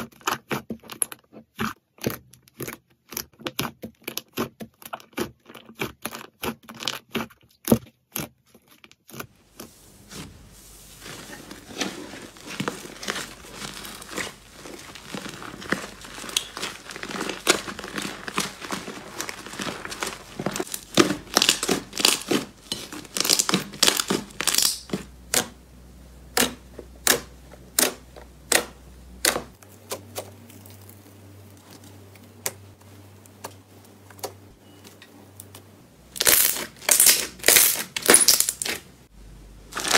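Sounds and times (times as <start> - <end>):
slime squeezed crackling: 11.1 - 25.5, 35.4 - 38.9.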